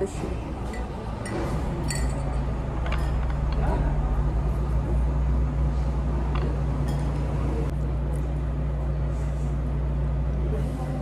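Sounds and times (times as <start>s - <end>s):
steady low hum: 0.0s - 11.0s
glassware clinking: 0.6s - 3.7s, 6.8s - 7.2s.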